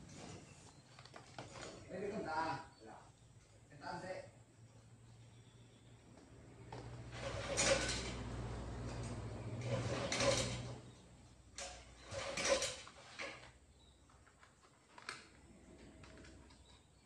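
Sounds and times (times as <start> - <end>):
engine parts scraping: 6.8 - 13.7.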